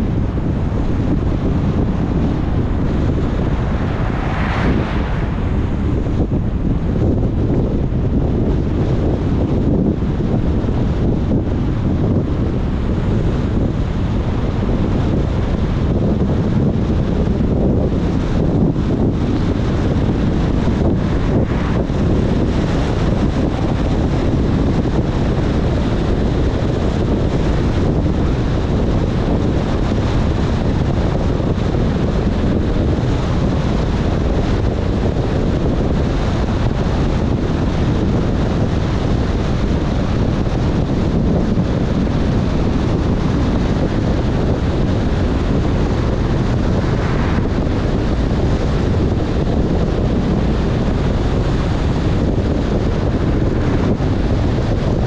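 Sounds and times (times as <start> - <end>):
tyres on wet road: 0.0 - 9.0, 12.3 - 28.6, 43.2 - 50.2, 51.0 - 54.7
car engine: 0.0 - 35.2, 38.6 - 55.0
wind: 0.0 - 55.0.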